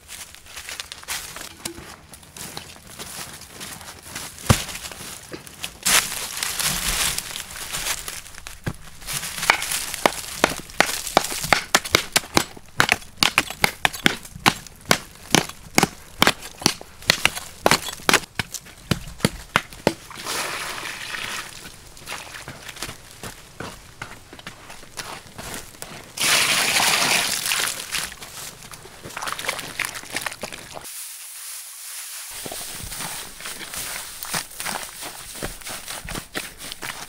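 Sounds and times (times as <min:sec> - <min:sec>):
loose soil scraping: 0:04.3 - 0:37.0
bamboo poles jabbing into earth: 0:04.4 - 0:05.0, 0:08.0 - 0:20.4.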